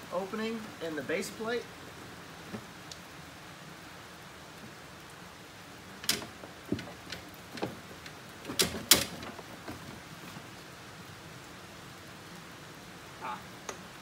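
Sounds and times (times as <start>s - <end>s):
rain hissing: 0.0s - 14.0s
sharp clicks and knocks on metal: 6.0s - 10.0s.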